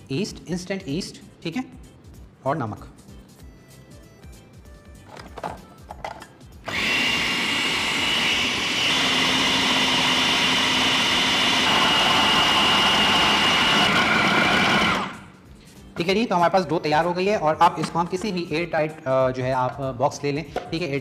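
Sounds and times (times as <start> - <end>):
food processor motor whining: 6.6 - 15.3.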